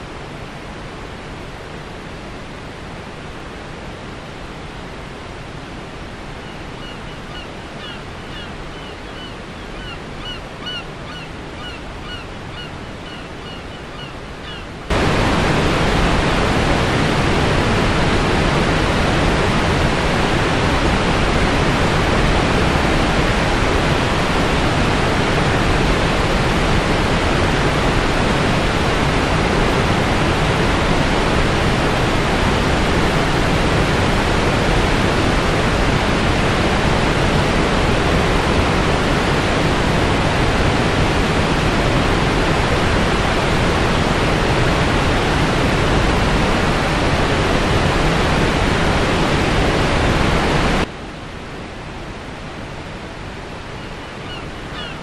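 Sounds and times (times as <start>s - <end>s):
water rushing down spillway: 14.9s - 50.9s.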